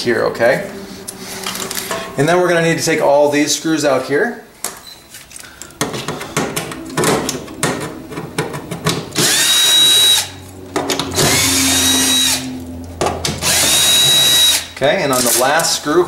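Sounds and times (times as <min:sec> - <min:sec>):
drill motor whining: 0:09.2 - 0:12.7, 0:13.3 - 0:14.7.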